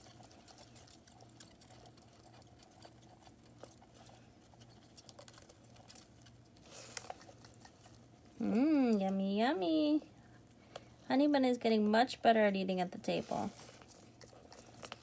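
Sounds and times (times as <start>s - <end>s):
lizard chewing crisp clicks: 0.0s - 8.1s, 13.8s - 15.0s
low steady hum: 0.0s - 15.0s.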